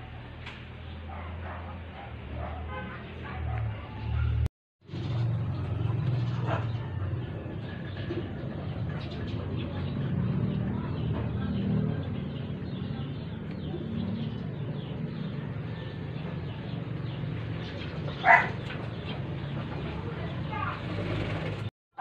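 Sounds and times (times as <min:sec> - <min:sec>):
dog barking: 0:01.0 - 0:04.5, 0:06.4 - 0:06.9, 0:18.2 - 0:18.6.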